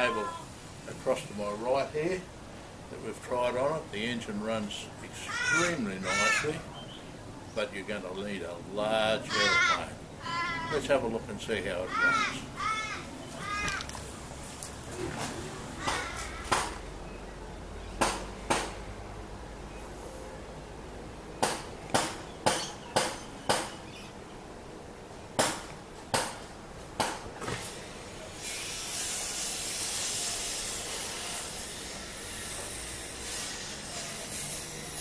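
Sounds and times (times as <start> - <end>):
steady high hiss: 0.0 - 26.0, 26.6 - 35.0
sharp knocks: 15.8 - 16.8, 18.0 - 18.8, 21.4 - 23.8, 25.4 - 27.6.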